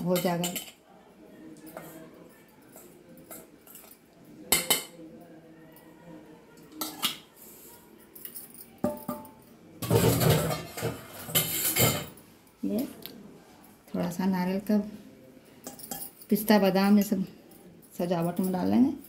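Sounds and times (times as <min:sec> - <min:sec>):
metal spatula clinking and scraping: 0:08.2 - 0:12.2, 0:15.6 - 0:16.4.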